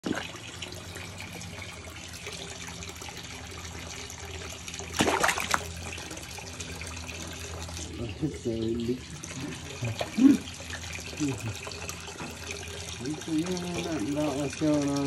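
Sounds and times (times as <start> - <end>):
filter water trickling and splashing: 0.0 - 15.0
low steady hum: 0.0 - 15.0
loud splash at water surface: 4.9 - 5.8.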